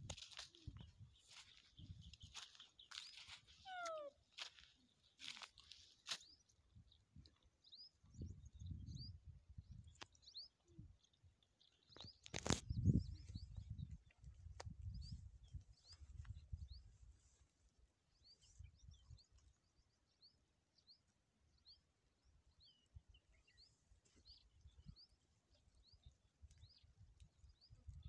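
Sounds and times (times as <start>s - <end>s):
wind rumble on microphone: 0.0s - 2.4s, 8.0s - 11.0s, 11.9s - 17.2s, 26.0s - 28.0s
small birds chirping: 0.0s - 28.0s.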